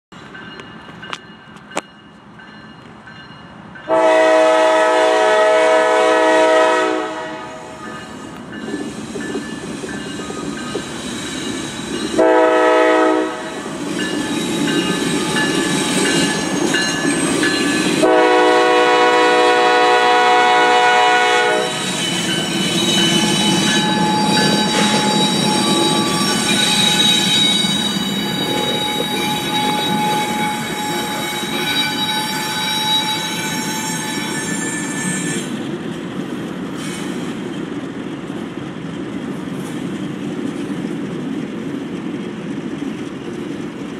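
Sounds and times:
locomotive air horn blasts: 3.9 - 7.9, 12.2 - 13.7, 18.0 - 21.9, 23.5 - 35.5
train wheels clacking on rails: 7.8 - 43.9
locomotive engines running: 21.6 - 33.9.

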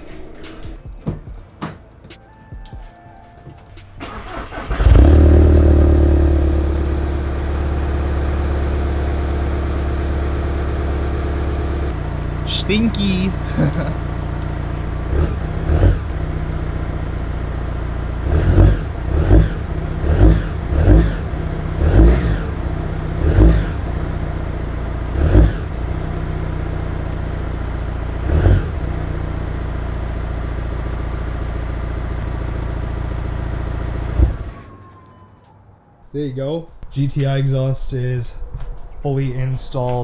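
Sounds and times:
diesel engine idling: 3.4 - 35.0.

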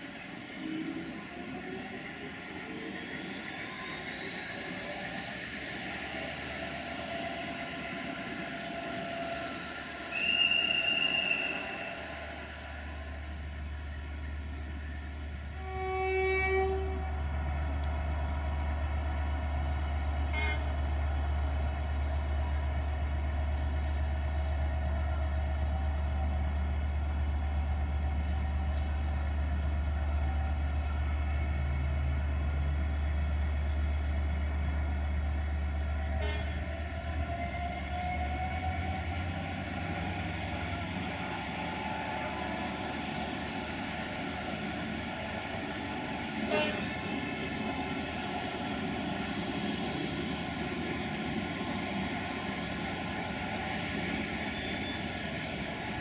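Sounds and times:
diesel locomotive rumbling: 0.0 - 56.0
high single-tone whistle: 7.6 - 8.2, 10.1 - 12.1, 54.4 - 55.2
train horn blast: 15.5 - 17.9, 20.3 - 20.9, 36.2 - 36.7, 46.4 - 47.2.

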